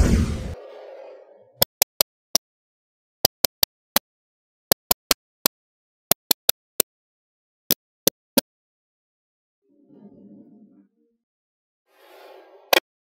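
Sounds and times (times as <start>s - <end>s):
magnetic balls clicking together: 6.1s - 6.9s.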